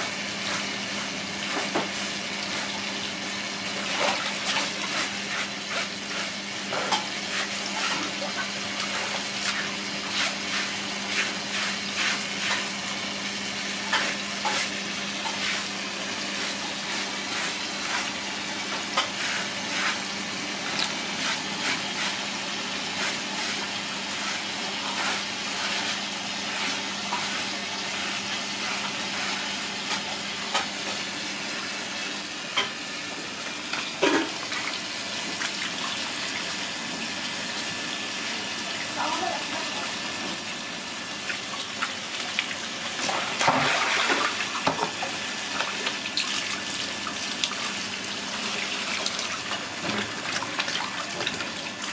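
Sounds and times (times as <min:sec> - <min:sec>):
water splashing on concrete: 0:41.8 - 0:44.8.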